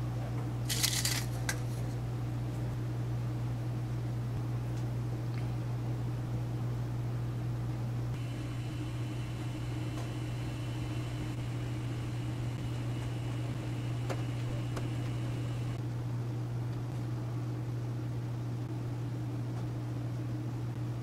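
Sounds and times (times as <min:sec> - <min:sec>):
steady low hum with hiss: 0:00.0 - 0:21.0
faint high whine: 0:08.2 - 0:15.8.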